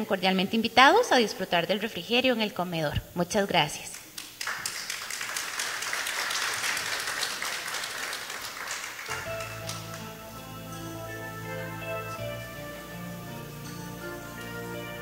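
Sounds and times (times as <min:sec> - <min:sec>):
audience applauding: 0:04.2 - 0:10.2
instrumental music sustained tones: 0:09.1 - 0:15.0.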